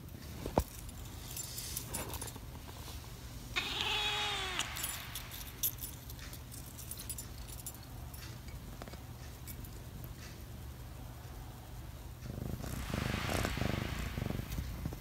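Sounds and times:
cat meowing: 3.6 - 5.1
keys jingling: 4.5 - 8.5.

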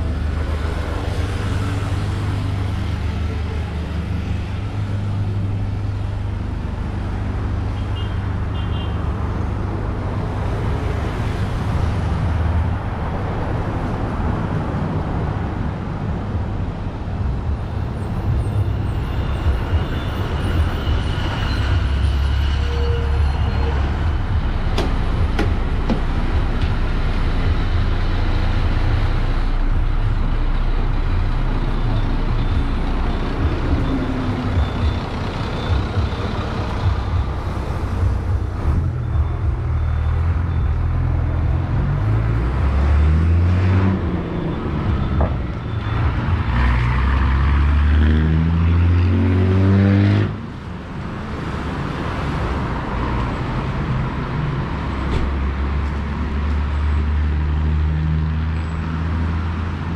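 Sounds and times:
car engines passing: 0.0 - 59.9
bus engine running: 9.2 - 47.1.

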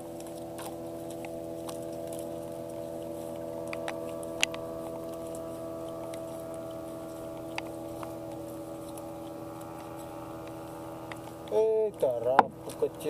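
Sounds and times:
small boat engine humming: 0.0 - 13.0.

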